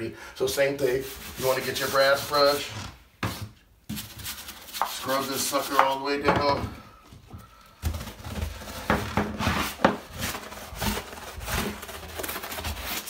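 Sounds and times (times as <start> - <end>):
brush scrubbing wet tile: 0.8 - 2.6, 3.9 - 6.0.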